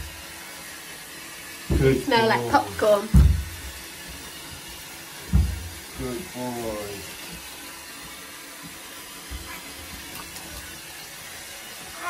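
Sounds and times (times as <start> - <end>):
water running into bathtub: 0.0 - 12.0
faint thuds and splashes: 1.6 - 2.1, 2.9 - 6.4, 7.1 - 10.8.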